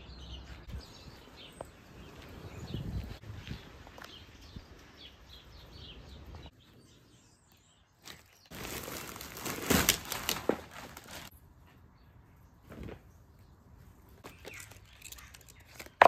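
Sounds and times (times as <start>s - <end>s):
small birds chirping: 0.0s - 9.5s, 11.6s - 16.0s
plastic bag rustling: 8.0s - 11.3s.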